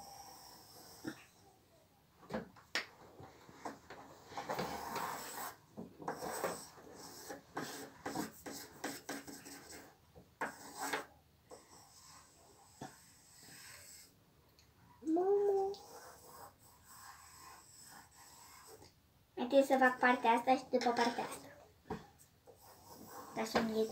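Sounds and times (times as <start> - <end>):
pencil scratching on paper: 4.2 - 14.1, 15.8 - 18.8, 19.4 - 21.4, 22.5 - 23.9.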